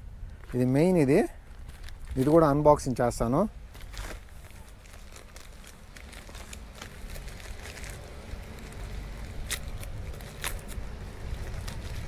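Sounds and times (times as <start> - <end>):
low steady rumble: 0.0 - 12.0
packaging clicks and crinkles: 1.5 - 2.4, 3.7 - 12.0.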